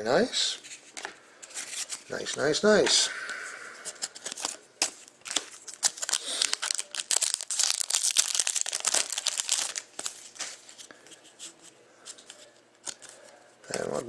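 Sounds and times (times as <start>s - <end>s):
cards rustling: 0.6s - 3.0s, 3.8s - 14.0s
card pack wrapper crinkling and tearing: 3.9s - 10.9s.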